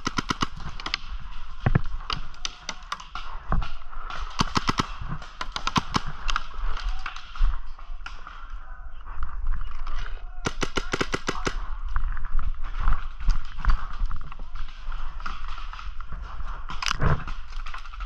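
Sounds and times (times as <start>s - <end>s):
paintball markers firing: 0.0s - 7.5s, 10.4s - 11.7s.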